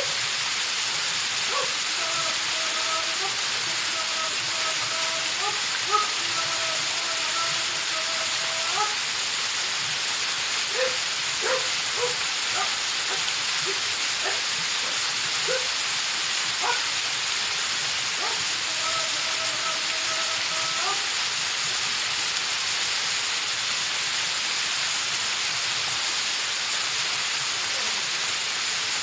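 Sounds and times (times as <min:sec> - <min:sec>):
waterfall pouring onto rock: 0:00.0 - 0:29.0
man chanting: 0:01.5 - 0:09.1, 0:18.2 - 0:21.1.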